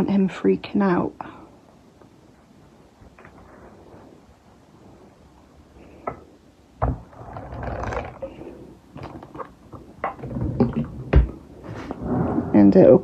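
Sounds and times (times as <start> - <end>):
items rustling and clattering: 2.0 - 4.3, 6.0 - 12.0.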